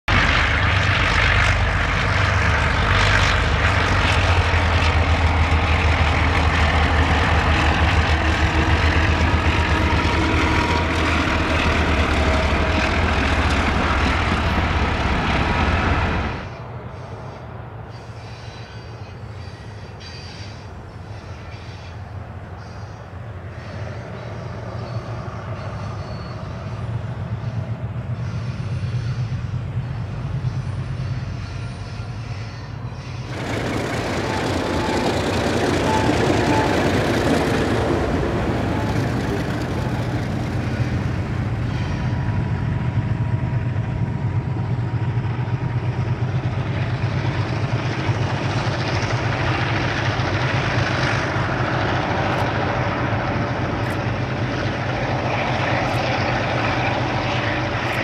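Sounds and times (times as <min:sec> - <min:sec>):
diesel locomotive engine drone: 0:00.0 - 0:58.0.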